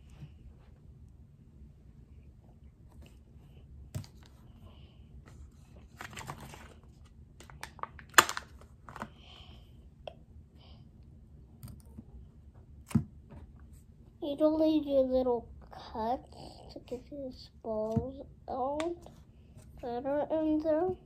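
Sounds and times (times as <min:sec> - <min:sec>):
plastic clicks and wrapper crinkling: 0:07.4 - 0:09.1.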